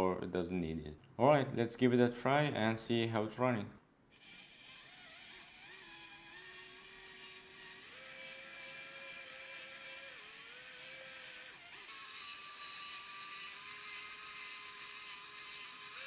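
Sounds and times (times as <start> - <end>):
small electric motor whine: 4.1 - 16.0.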